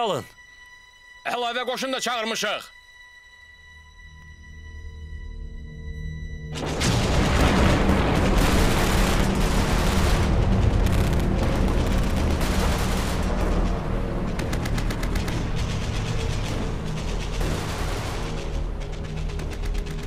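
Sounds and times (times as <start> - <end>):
dense automatic gunfire: 6.7 - 20.0.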